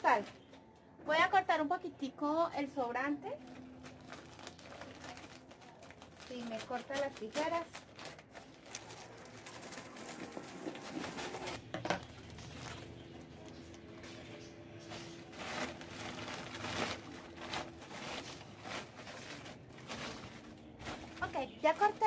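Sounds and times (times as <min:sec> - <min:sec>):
plastic bag crinkling: 0:03.3 - 0:22.0.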